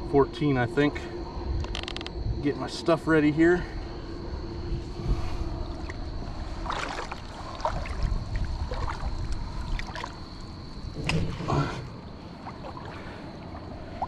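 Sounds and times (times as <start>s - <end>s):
shallow water sloshing: 4.0s - 14.0s
sharp water splashes: 6.6s - 11.6s.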